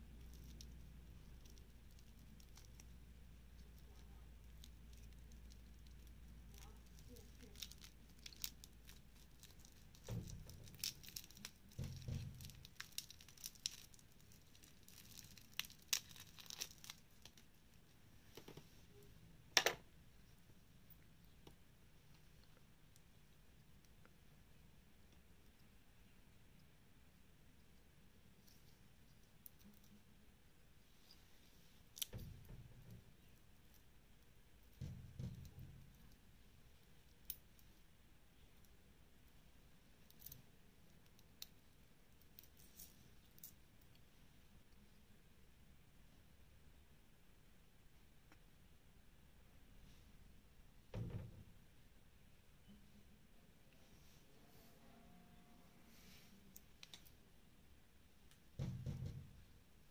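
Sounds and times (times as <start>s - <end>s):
plastic film crinkling and tearing: 3.6s - 17.6s.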